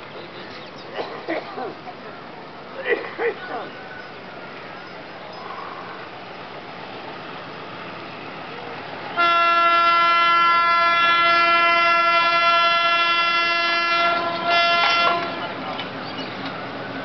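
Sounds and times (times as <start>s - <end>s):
locomotive horn blast: 9.1s - 15.6s.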